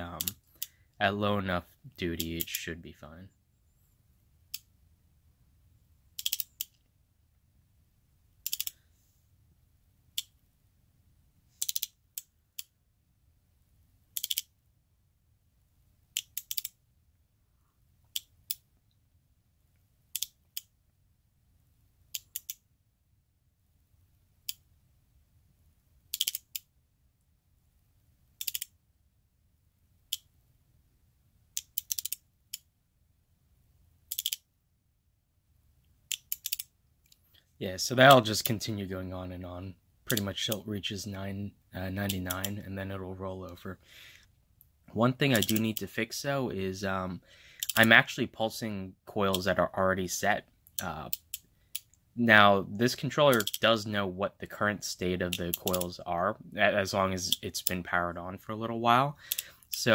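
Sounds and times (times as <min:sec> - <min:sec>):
flip display segments clicking: 0:45.3 - 0:45.9.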